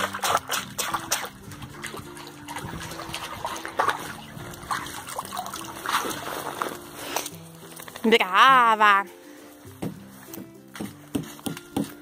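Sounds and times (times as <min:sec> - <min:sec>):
water splashing around dog: 0:00.0 - 0:07.0.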